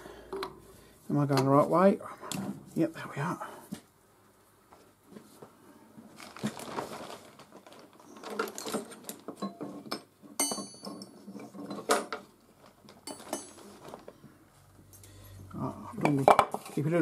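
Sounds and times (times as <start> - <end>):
clatter of hard objects: 6.2 - 14.2.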